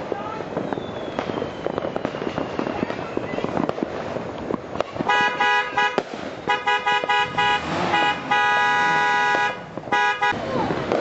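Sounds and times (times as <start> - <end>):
car horn honking: 5.0 - 10.4.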